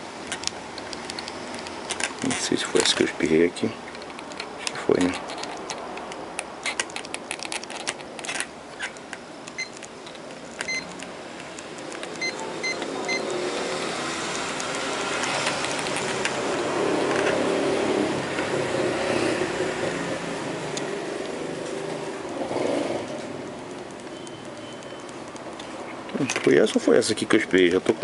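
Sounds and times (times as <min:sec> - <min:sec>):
loud rushing noise: 0:13.4 - 0:23.4.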